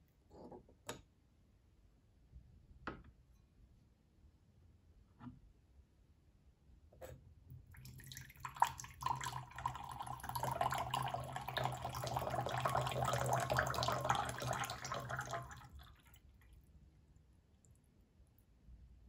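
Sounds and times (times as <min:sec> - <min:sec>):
water pouring into a glass pitcher: 0:07.7 - 0:16.7.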